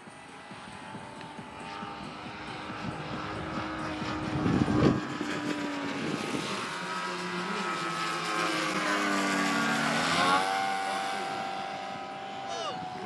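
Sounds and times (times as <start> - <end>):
model aircraft passing low: 0.0 - 13.0
model aircraft propellers droning: 0.0 - 13.0.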